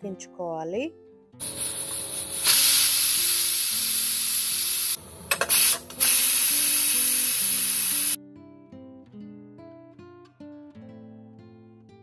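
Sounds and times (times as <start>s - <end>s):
pressure cooker steam hissing: 1.4s - 8.2s.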